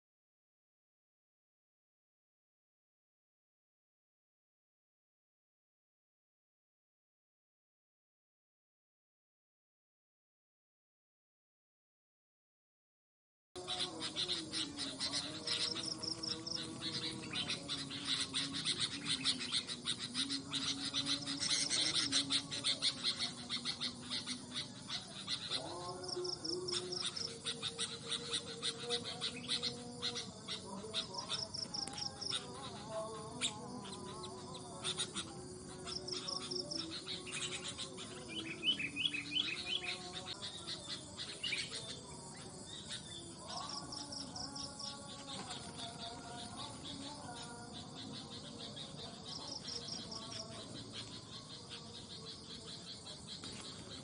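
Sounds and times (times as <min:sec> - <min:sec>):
insect noise: 0:13.6 - 0:54.0
songbirds chirping: 0:13.6 - 0:54.0.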